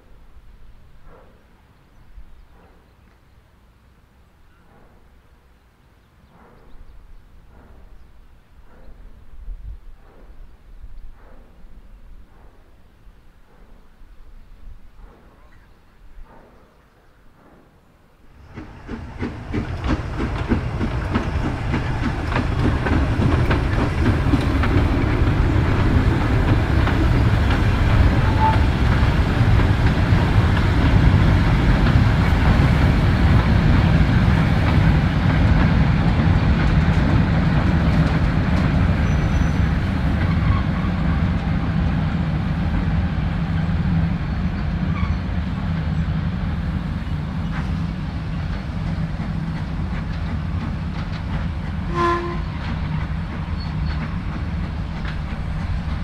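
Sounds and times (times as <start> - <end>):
steam locomotive chugging: 14.8 - 56.0.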